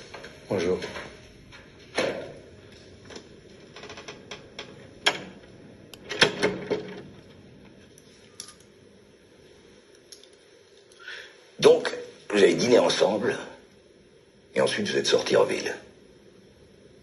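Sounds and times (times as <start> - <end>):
sharp clicks and knocks: 3.0 - 7.4.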